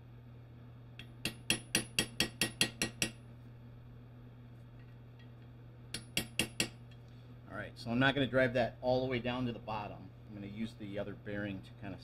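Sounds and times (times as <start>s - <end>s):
hammer tapping on metal: 1.0s - 3.2s, 5.9s - 6.8s.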